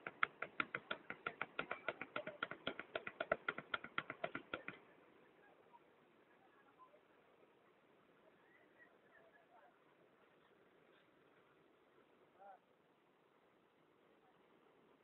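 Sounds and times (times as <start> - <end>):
rapid sharp clicks: 0.0 - 4.8
faint hiss: 4.5 - 15.0.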